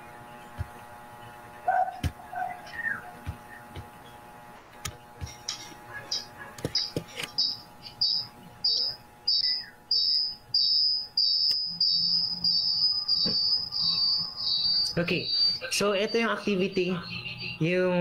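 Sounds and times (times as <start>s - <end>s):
high-pitched chirping: 1.7s - 3.8s, 6.0s - 18.0s.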